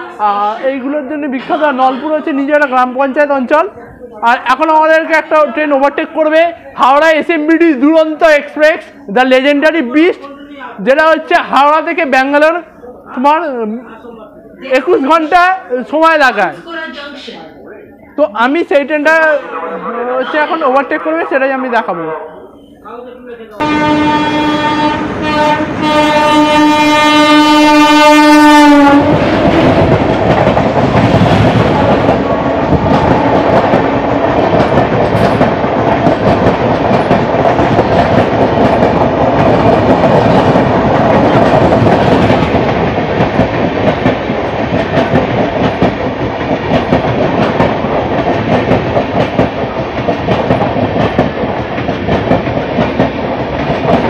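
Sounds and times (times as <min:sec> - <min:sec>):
train coaches rumbling past: 0:00.0 - 0:54.0
locomotive horn: 0:19.4 - 0:22.4, 0:23.6 - 0:29.8.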